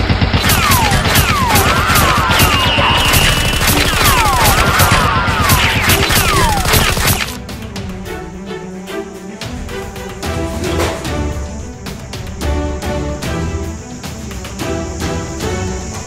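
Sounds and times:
automatic gunfire: 0:00.0 - 0:07.4
whistles falling in pitch: 0:00.6 - 0:07.2.

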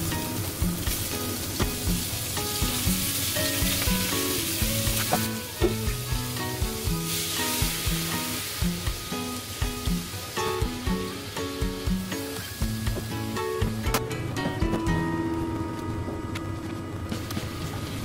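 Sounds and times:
food sizzling in a pan: 0:00.0 - 0:13.8
background music with beat: 0:00.0 - 0:17.6.

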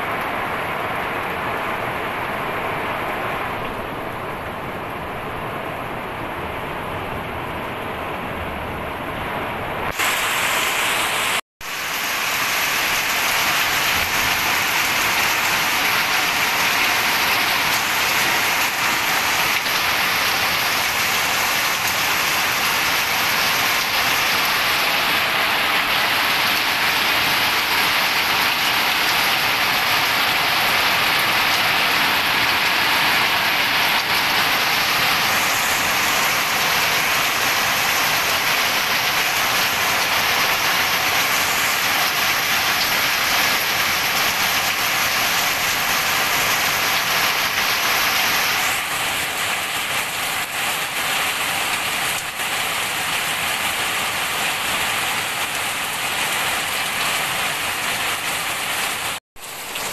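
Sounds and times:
heavy rain on plants: 0:00.0 - 0:07.5, 0:09.0 - 0:59.9.

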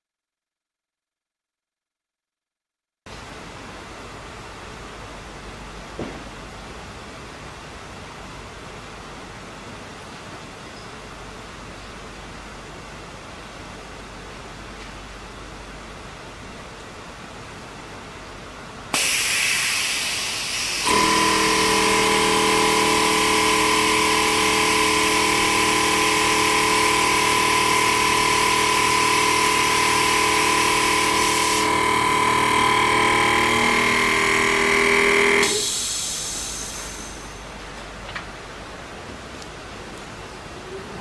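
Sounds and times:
machine hissing: 0:18.9 - 0:37.6
machine humming and whining: 0:19.0 - 0:38.0.

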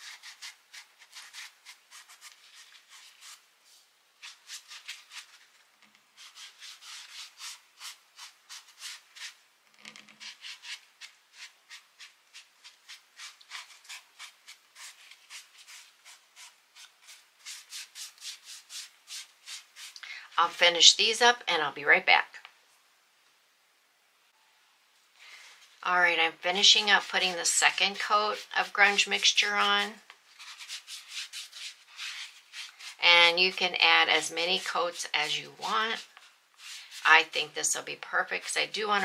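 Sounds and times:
sponge brush scrubbing fabric: 0:00.0 - 0:03.4, 0:04.2 - 0:05.5, 0:06.2 - 0:09.4, 0:10.2 - 0:20.8, 0:26.4 - 0:37.6, 0:38.3 - 0:39.0.

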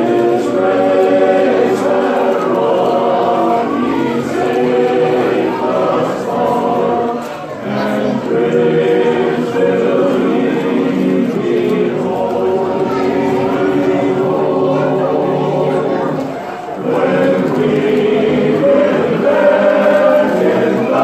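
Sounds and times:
men's chorus singing a cappella: 0:00.0 - 0:21.0.

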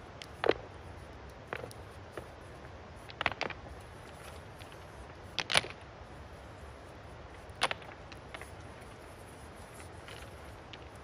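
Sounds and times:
stones clacking together: 0:00.2 - 0:00.7, 0:01.4 - 0:02.4, 0:03.0 - 0:05.9, 0:07.4 - 0:09.0, 0:09.7 - 0:11.0.

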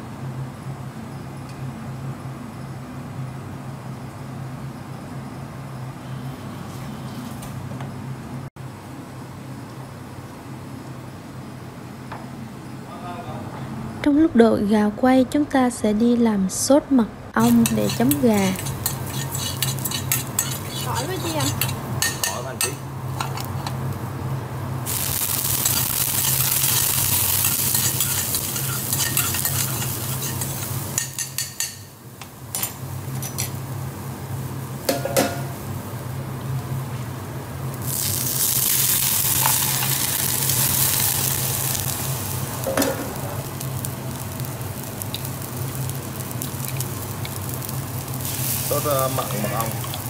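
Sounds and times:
steady low hum: 0:00.0 - 0:50.0
garlic sizzling in frying pan: 0:17.4 - 0:36.8, 0:37.6 - 0:50.0.

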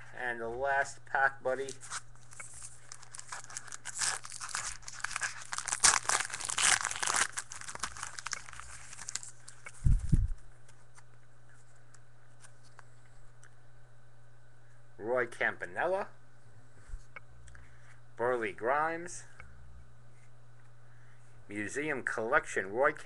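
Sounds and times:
wrapper tearing and crinkling: 0:01.7 - 0:10.1.

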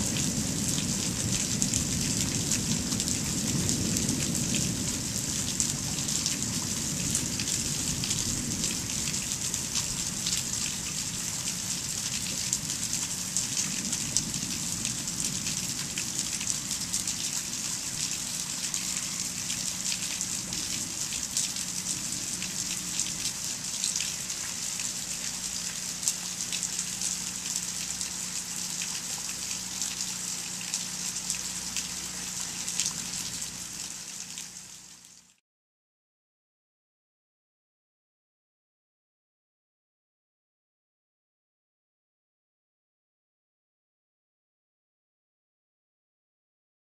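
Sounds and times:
low thunder rumble: 0:00.0 - 0:26.5
steady rain falling: 0:00.0 - 0:35.4.

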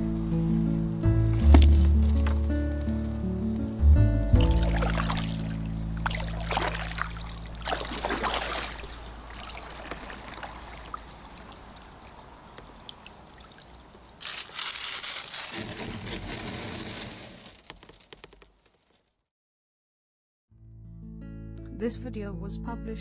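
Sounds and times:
low background music: 0:00.0 - 0:09.1
paddle splashing in water: 0:04.4 - 0:12.2.

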